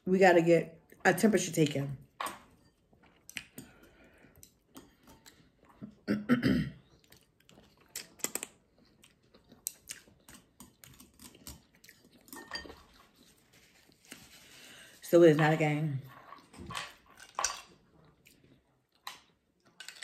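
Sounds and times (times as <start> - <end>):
person chewing noodles: 2.7 - 6.1, 6.8 - 14.6.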